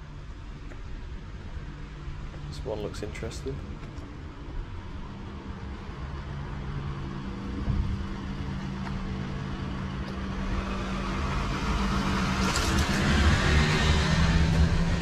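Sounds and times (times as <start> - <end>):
van engine hum: 0.0 - 15.0
tyre noise on road: 3.4 - 15.0.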